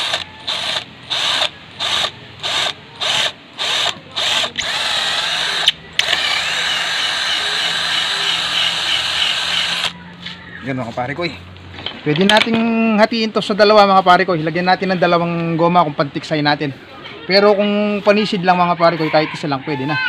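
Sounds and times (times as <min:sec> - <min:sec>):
cordless drill boring into wood: 0:00.0 - 0:10.0.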